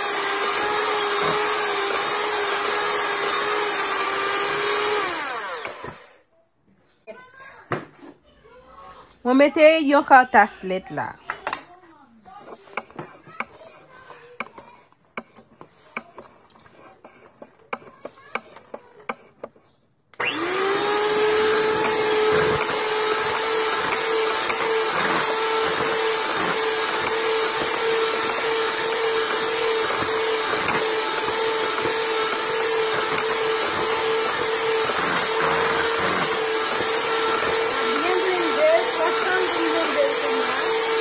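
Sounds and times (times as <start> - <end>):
electric hand mixer whining: 0.0 - 6.2, 20.2 - 41.0.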